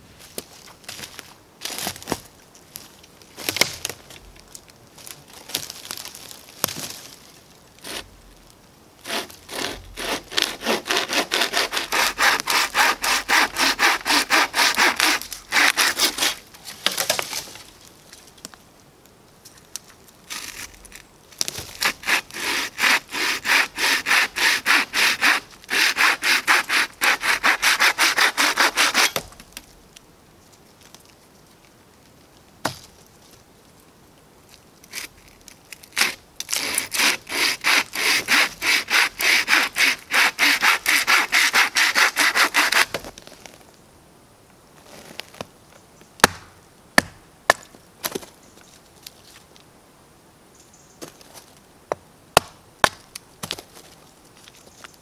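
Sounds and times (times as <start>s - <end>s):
saw cutting a log: 9.0s - 16.4s, 21.8s - 29.3s, 36.0s - 43.0s.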